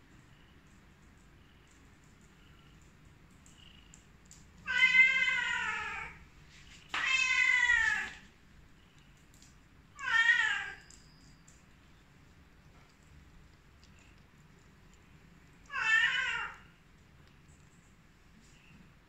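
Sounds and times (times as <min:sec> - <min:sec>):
cat meowing: 0:04.6 - 0:06.2, 0:07.0 - 0:08.2, 0:10.0 - 0:10.8, 0:15.6 - 0:16.7.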